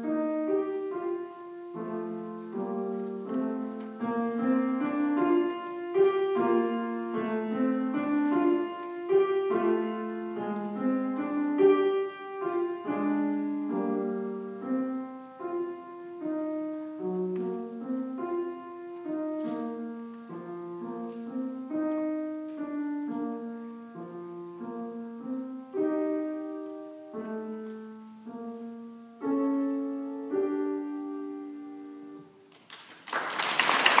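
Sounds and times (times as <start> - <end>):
solo grand piano: 0.0 - 34.0
applause: 32.5 - 34.0.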